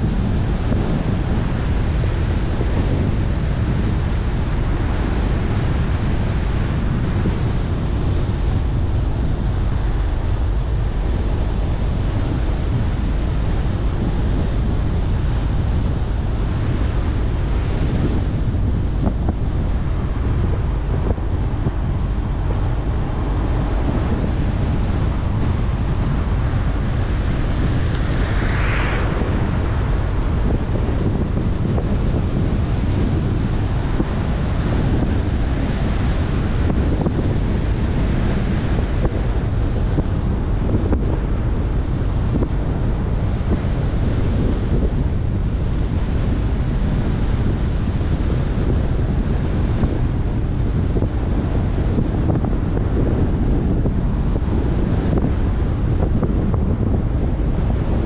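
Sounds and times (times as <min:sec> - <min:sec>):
wind buffeting microphone: 0:00.0 - 0:58.0
car road noise: 0:15.4 - 0:37.0.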